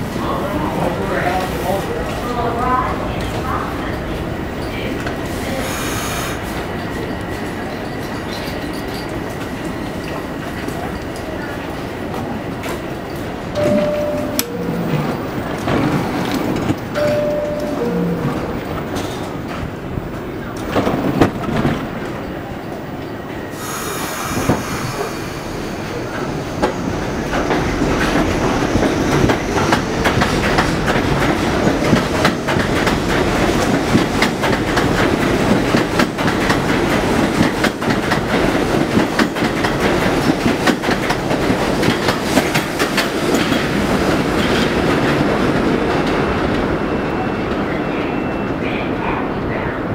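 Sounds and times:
subway train running: 0.0s - 49.9s.

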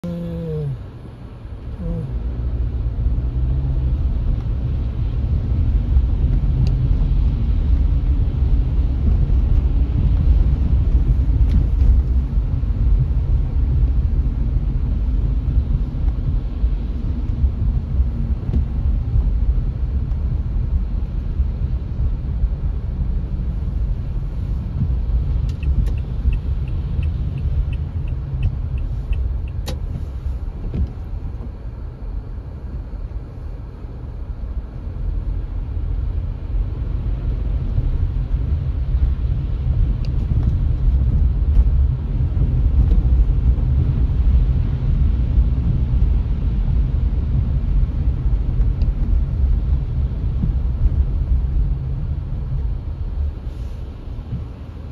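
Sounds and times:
car road noise rumble: 0.0s - 54.9s
light ticking: 25.4s - 29.9s.

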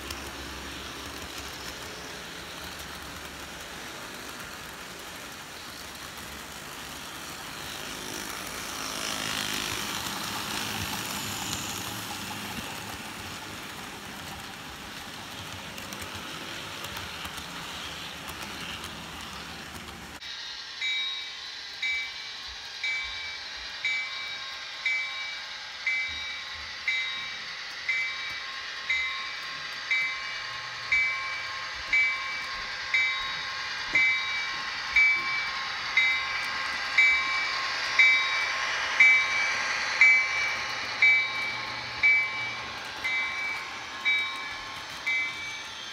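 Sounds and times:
model train cars rumbling: 0.0s - 45.9s
locomotive bell ringing: 20.8s - 45.9s.

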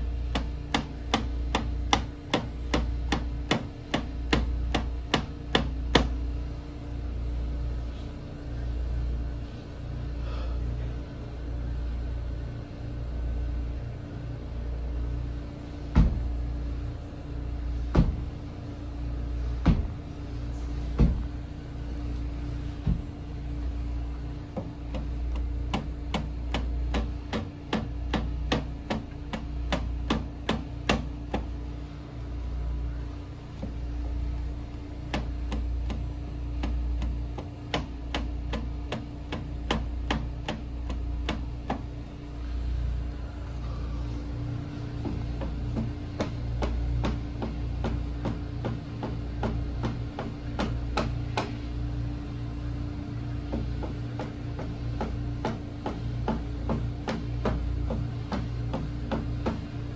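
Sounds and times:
steady low hum: 0.0s - 59.9s
kicks knocking on sheet metal: 17.9s - 18.3s.

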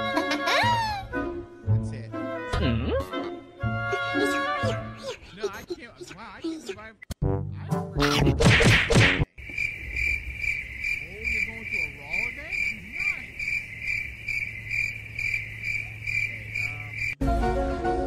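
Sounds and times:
crickets chirping: 9.3s - 17.2s.

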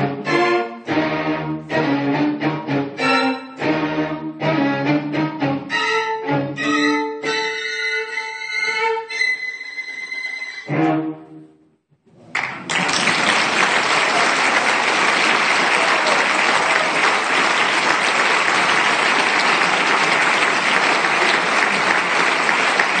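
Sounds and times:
audience applause: 12.3s - 23.0s.

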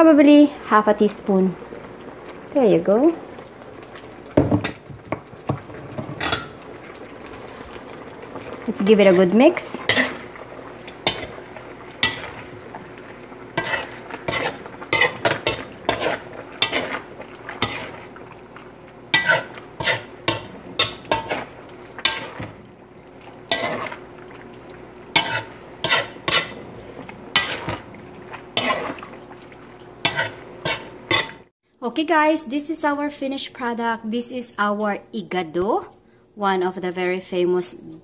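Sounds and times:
utensil scraping a metal wok: 9.0s - 11.4s, 12.0s - 12.6s, 13.5s - 18.1s, 19.1s - 22.6s, 23.4s - 24.0s, 25.1s - 29.1s, 30.0s - 31.5s.

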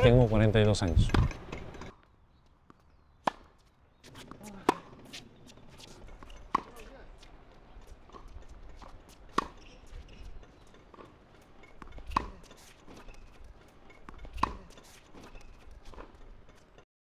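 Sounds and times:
racket hitting tennis ball: 3.2s - 7.4s, 8.0s - 10.3s, 10.9s - 16.1s
ball bouncing: 6.0s - 6.9s.

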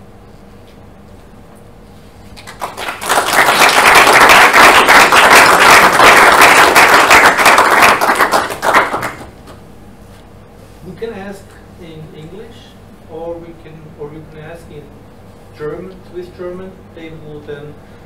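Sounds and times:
audience applauding: 2.4s - 9.3s.

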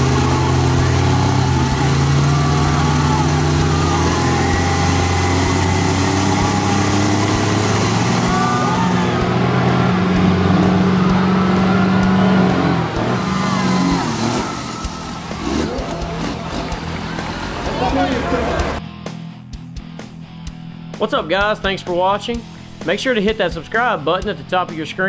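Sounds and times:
heavy vehicle engine running: 0.0s - 18.8s.

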